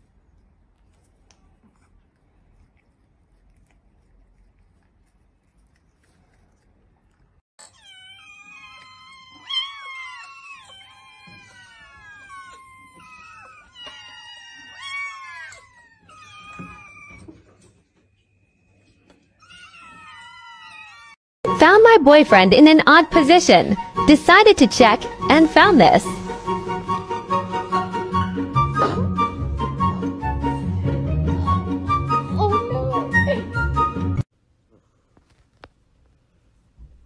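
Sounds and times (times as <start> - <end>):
kittens meowing: 7.6 - 17.5, 19.4 - 21.2.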